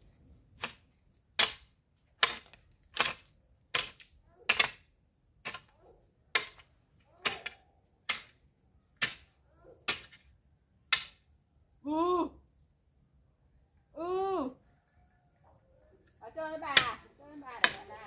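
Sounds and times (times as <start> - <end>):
hoe chopping into soil: 0.6 - 5.7, 6.3 - 8.4, 9.0 - 10.3, 17.6 - 18.0.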